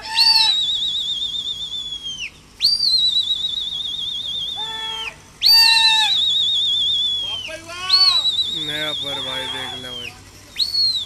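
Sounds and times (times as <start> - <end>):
warbling whistles: 0.0 - 11.0
short shouted call: 4.6 - 6.3, 7.2 - 10.2.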